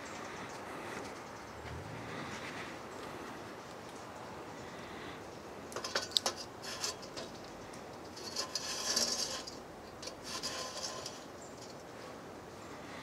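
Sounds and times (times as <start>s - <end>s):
metal scraping on metal: 5.8s - 11.8s.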